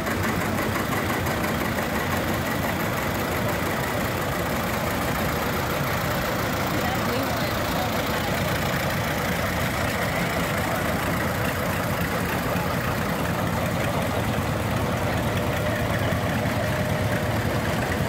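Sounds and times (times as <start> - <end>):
tractor engines pulsing: 0.0 - 18.0.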